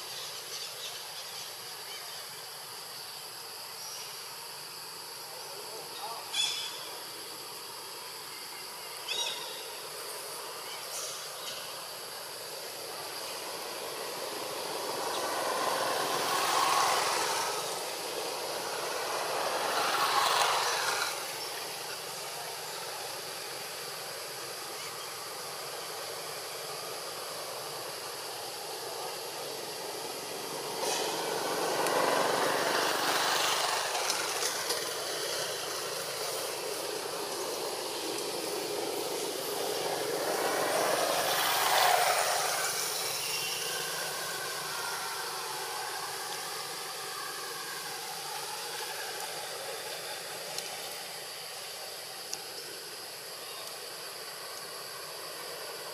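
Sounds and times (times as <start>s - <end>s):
faint steady high whine: 0.0s - 55.9s
outdoor background hiss: 0.0s - 55.9s
vehicles passing by: 12.0s - 55.9s.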